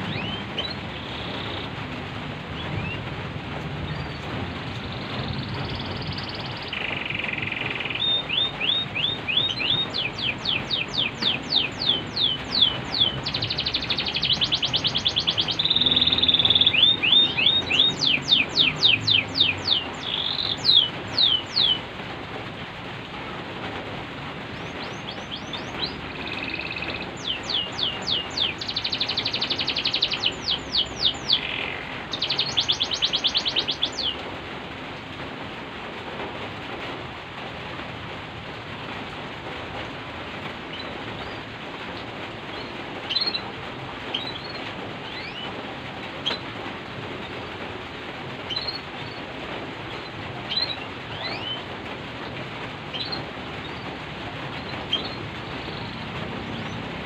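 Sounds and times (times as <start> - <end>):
canary singing trills: 0.0 - 1.8, 3.8 - 21.9, 24.5 - 34.2, 42.5 - 43.4, 44.1 - 45.5, 48.4 - 49.3, 50.0 - 51.7, 52.9 - 54.0, 54.6 - 56.9
rain hiss: 0.0 - 57.0.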